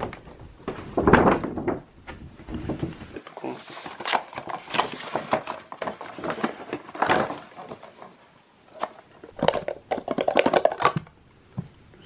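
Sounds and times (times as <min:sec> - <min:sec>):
cardboard box rustling and clicking: 0:03.2 - 0:08.1.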